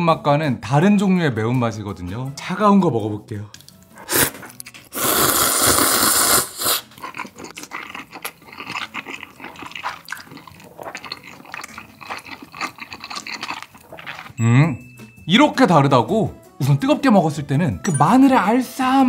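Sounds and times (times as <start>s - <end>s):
wet chewing: 3.6s - 14.4s
loud noodle slurp: 4.0s - 14.4s.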